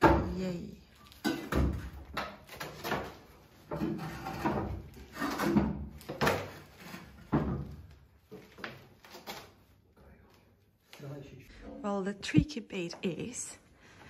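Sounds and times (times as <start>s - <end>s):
cast iron stove knocks and scrapes: 1.2s - 7.8s.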